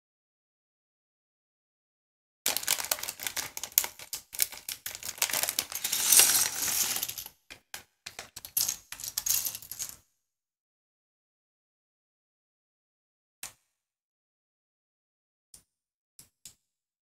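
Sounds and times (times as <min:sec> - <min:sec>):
plastic bag crinkling: 0:02.5 - 0:03.7, 0:04.4 - 0:07.3
plastic bricks clattering on table: 0:02.5 - 0:07.4, 0:08.1 - 0:10.0.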